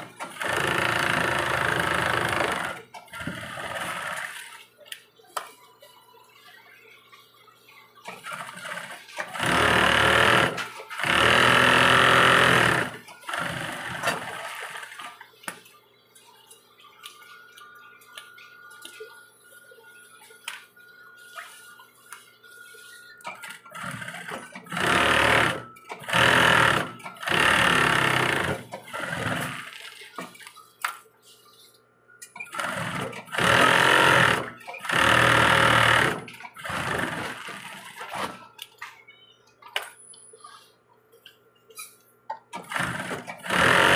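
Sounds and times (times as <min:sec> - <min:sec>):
sewing machine stitching: 0:00.0 - 0:04.6, 0:08.1 - 0:15.1, 0:23.4 - 0:29.9, 0:32.4 - 0:38.4, 0:42.6 - 0:43.9.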